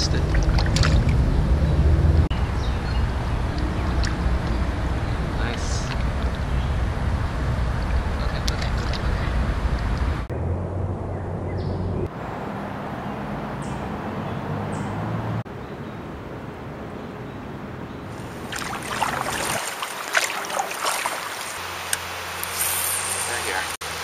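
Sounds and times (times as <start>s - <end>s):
trickling water splashes: 0.0s - 1.3s, 18.1s - 24.0s
moving water: 0.0s - 2.2s, 3.1s - 10.2s, 18.0s - 24.0s
wind: 0.0s - 24.0s.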